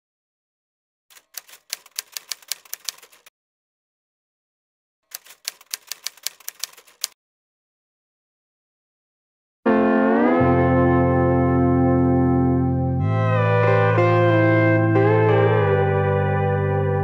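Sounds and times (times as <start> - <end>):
typewriter keys clacking: 1.1 - 3.3, 5.1 - 7.2.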